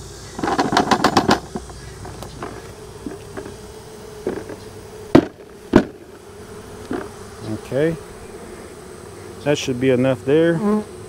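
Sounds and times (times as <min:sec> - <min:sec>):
bees humming: 0:00.0 - 0:11.0
wooden frame knocking on plastic bucket: 0:00.4 - 0:03.6, 0:04.2 - 0:06.1, 0:06.9 - 0:07.1.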